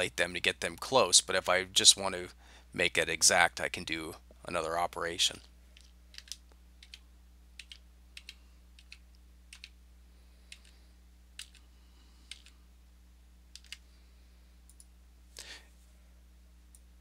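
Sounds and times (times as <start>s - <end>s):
faint low hum: 0.0s - 17.0s
computer mouse clicks: 5.8s - 7.0s, 7.6s - 9.7s, 10.5s - 10.8s, 11.4s - 11.6s, 12.3s - 12.6s, 13.5s - 13.8s.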